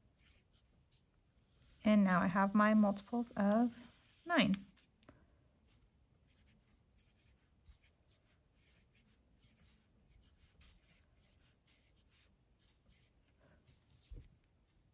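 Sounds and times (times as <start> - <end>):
pencil scratching on paper: 0.0 - 4.9, 5.7 - 14.2.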